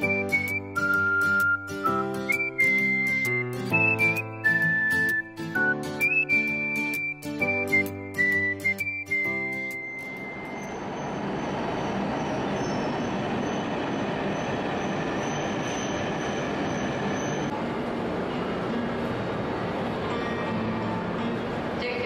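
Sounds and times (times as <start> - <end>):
faint high squeal: 9.5 - 17.5
train rumbling: 10.0 - 22.0.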